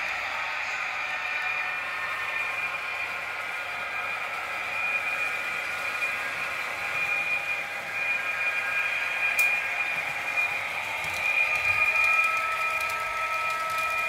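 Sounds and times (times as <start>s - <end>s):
model train motor whine: 0.0s - 14.0s
wheels running on track: 0.0s - 14.0s.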